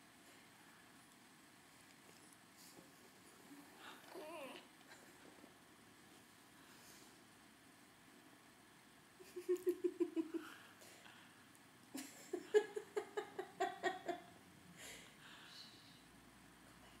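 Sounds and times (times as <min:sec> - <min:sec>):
woman giggling: 0:09.2 - 0:10.6, 0:12.0 - 0:14.3.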